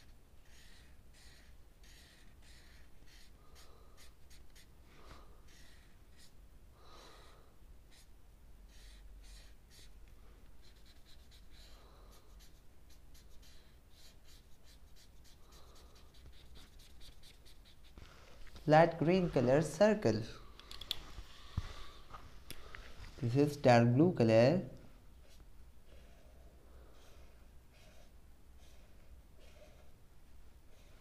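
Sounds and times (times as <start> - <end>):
marker scratching on paper: 0.0 - 6.4, 7.9 - 8.1, 8.7 - 10.0, 10.6 - 19.7, 25.2 - 30.0, 30.7 - 31.0.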